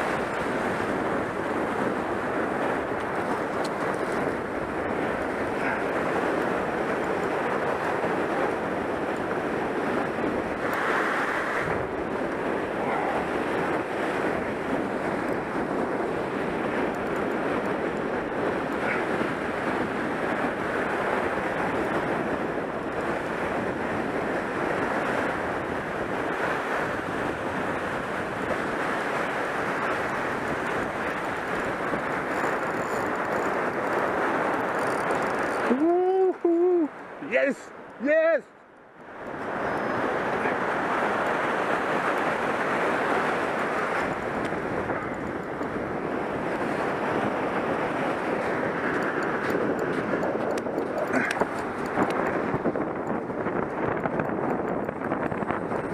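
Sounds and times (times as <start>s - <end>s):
surf waves on sand: 0.0s - 55.9s
wind buffeting microphone: 0.0s - 55.9s.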